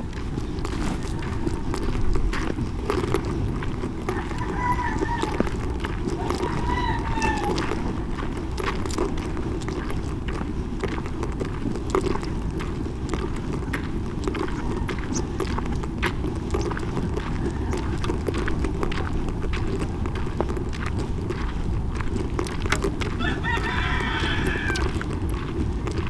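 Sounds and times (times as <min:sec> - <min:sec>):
motorcycle engine rumble: 0:00.0 - 0:04.5
wind: 0:00.0 - 0:26.0.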